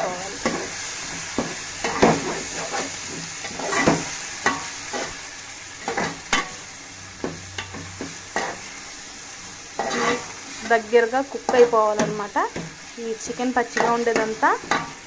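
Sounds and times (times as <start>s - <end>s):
chicken sizzling in hot oil: 0.0s - 15.0s
metal spoon scraping a pot: 9.8s - 10.4s.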